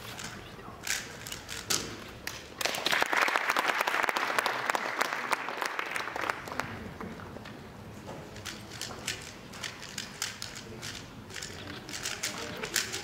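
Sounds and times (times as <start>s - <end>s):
audience applauding: 2.6s - 6.8s
puzzle cube clicking: 8.4s - 13.0s.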